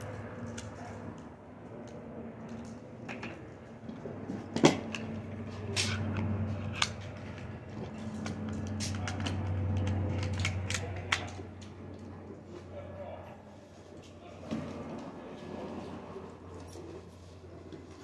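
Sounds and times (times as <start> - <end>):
low hum: 0.0 - 18.0
clicks and knocks of gear: 0.4 - 12.1.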